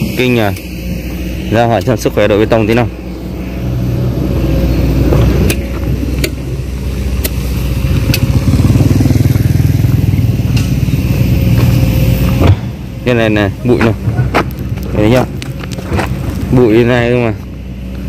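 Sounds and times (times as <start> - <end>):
small motorbike engine passing: 3.3 - 12.8.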